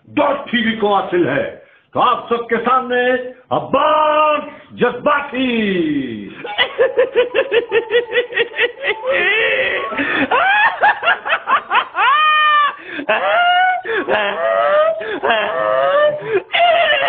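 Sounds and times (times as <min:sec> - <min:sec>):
man laughing hard: 0:06.3 - 0:17.0.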